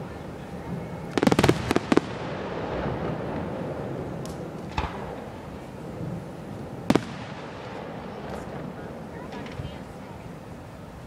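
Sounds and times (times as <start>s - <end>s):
steady background noise: 0.0s - 11.0s
firework shells bursting: 6.7s - 9.6s.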